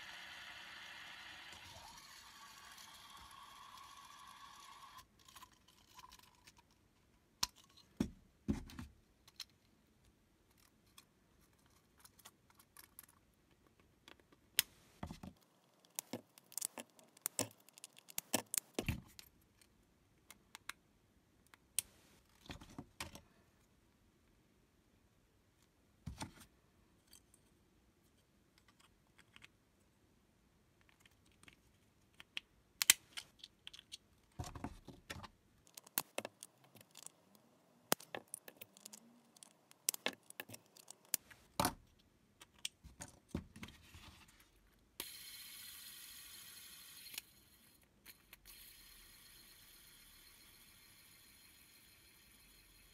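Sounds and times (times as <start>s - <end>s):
plastic tiles clicking and knocking: 15.1s - 20.8s, 30.8s - 43.3s.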